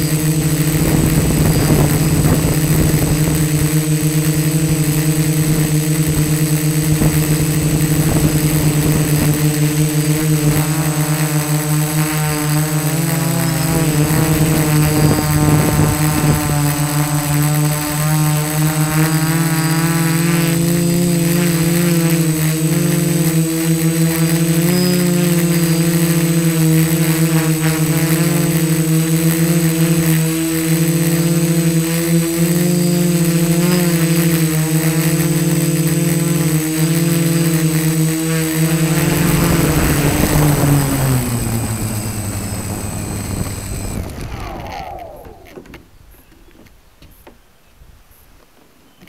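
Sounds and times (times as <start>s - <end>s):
drone motors humming: 0.0s - 46.3s.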